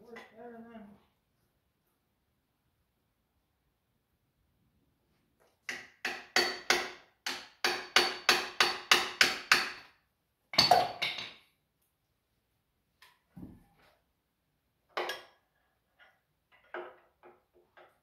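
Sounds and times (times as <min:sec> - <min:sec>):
hammer striking metal: 0:05.7 - 0:09.9.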